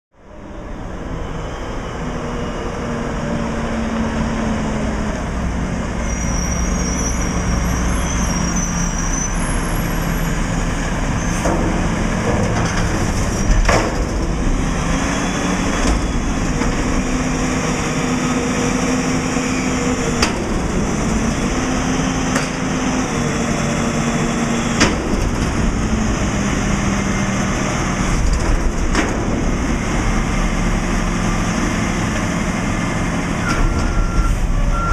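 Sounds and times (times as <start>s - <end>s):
garbage truck diesel engine running: 0.4s - 34.9s.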